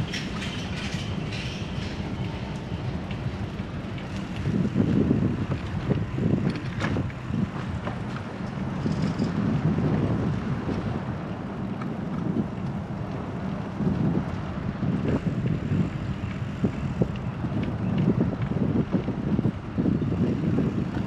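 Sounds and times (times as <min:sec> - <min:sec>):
road and tyre noise: 0:00.0 - 0:21.0
wind buffeting microphone: 0:00.0 - 0:21.0.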